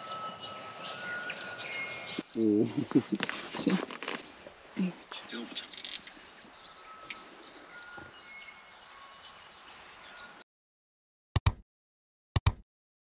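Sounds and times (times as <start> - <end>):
bird whistling: 0.0 - 2.2, 5.4 - 10.3
faint outdoor ambience: 0.0 - 10.4
sharp clicks: 11.4 - 11.6, 12.4 - 12.6.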